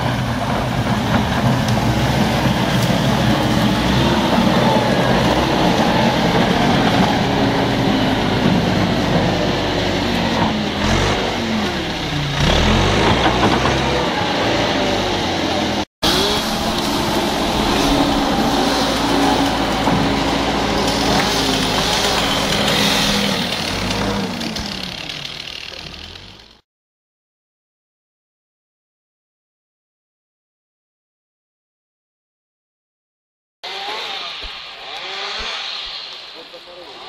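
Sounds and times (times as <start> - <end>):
diesel engine revving under load: 0.0 - 26.6.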